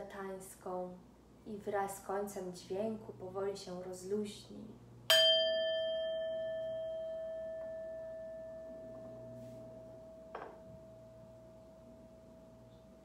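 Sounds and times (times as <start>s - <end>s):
singing bowl ringing: 5.1s - 12.7s
soft knock: 10.3s - 10.8s.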